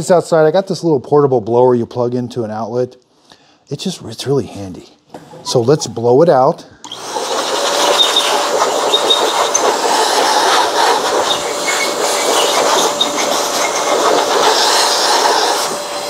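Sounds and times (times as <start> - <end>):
electric blower rush of air: 6.8 - 16.0.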